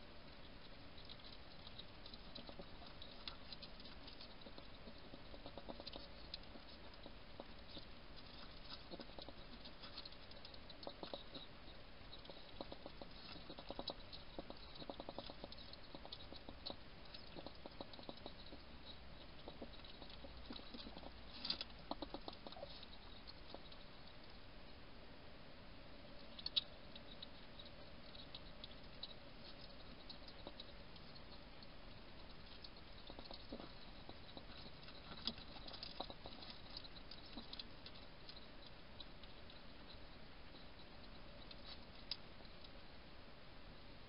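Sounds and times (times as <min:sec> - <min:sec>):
faint electronic hum: 0:00.0 - 0:44.0.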